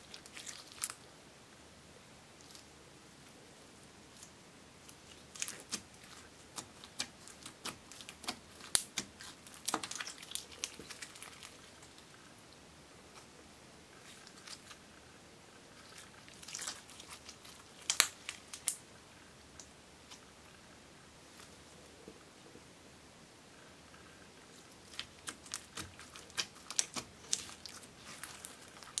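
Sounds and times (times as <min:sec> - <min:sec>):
slime sticky pops and crackles: 0:16.6 - 0:18.8, 0:24.9 - 0:29.0.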